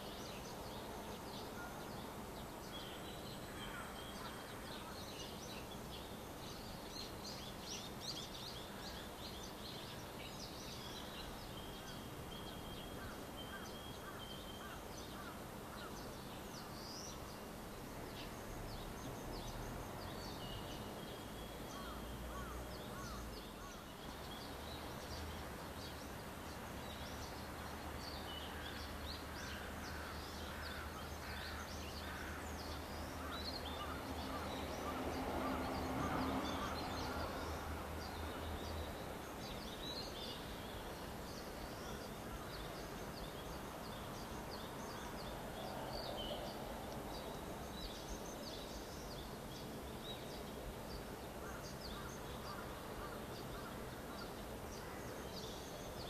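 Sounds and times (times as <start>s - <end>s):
small birds chirping: 0.0s - 56.0s.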